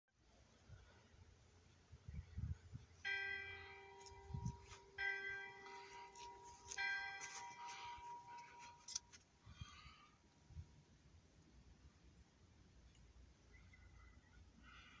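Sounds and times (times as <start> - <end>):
church bell striking: 3.1 - 9.0.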